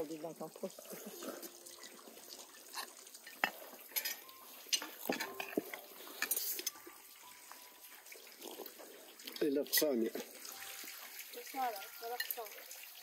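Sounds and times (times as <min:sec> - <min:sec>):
cutlery clinking against plates: 0:02.7 - 0:06.8, 0:09.2 - 0:10.3.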